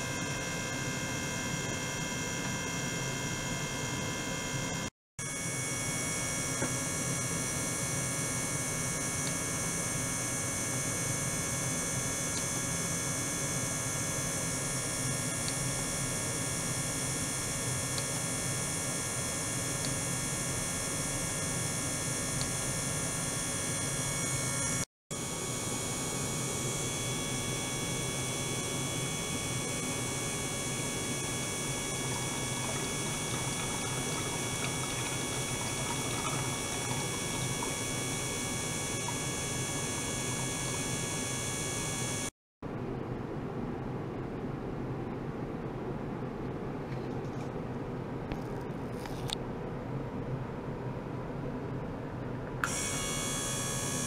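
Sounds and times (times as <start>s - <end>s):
steady electrical hum: 0.0s - 54.0s.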